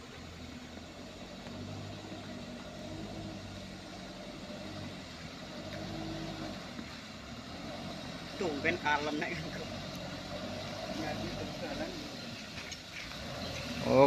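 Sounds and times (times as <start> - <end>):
distant diesel truck engine: 0.0 - 14.0.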